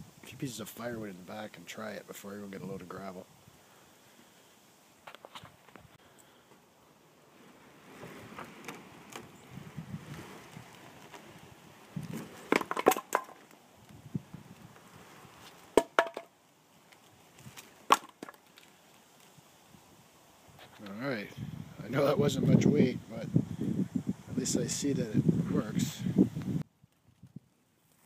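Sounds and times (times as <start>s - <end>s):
scraping and rustling: 7.2s - 13.6s
firewood knocking on asphalt: 12.0s - 13.5s, 15.7s - 16.3s, 17.9s - 18.6s.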